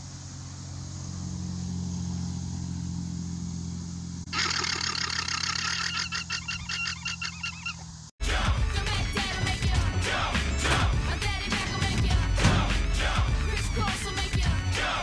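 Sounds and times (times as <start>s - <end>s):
low mechanical hum: 0.0s - 8.1s
llama shrill alarm call: 4.3s - 7.9s.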